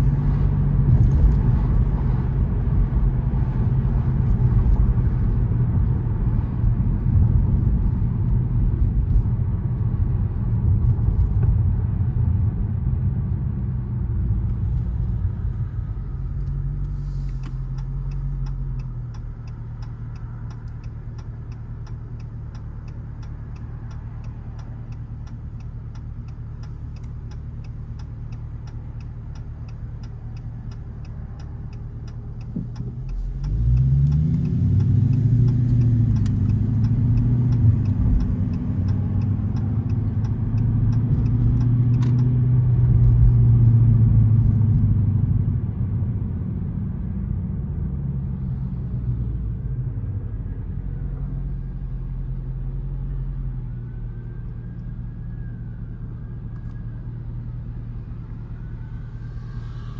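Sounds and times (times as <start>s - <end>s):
car engine idling and accelerating: 0.0s - 59.9s
turn signal ticking: 13.0s - 45.0s, 47.6s - 59.9s.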